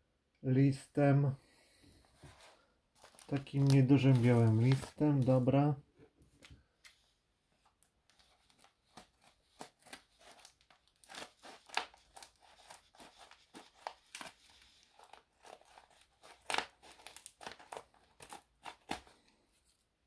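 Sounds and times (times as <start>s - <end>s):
paper crinkling: 2.2s - 5.4s, 7.6s - 19.8s
scissors snipping paper: 8.2s - 19.2s.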